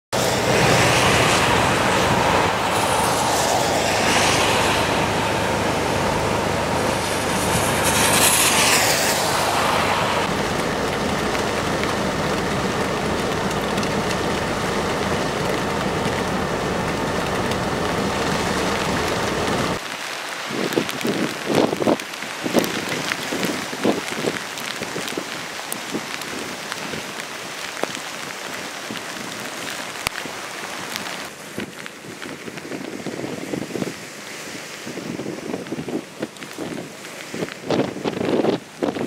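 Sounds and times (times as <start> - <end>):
wind and rain: 0.1 - 39.0
vehicles driving past: 0.2 - 19.8
tyres hissing on wet pavement: 0.2 - 39.0.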